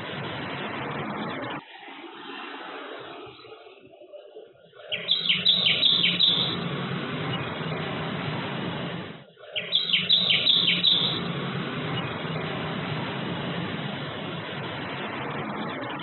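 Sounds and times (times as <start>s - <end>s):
steady background hiss: 0.0s - 16.0s
bird calling sharp high notes: 4.8s - 6.7s, 9.4s - 11.4s.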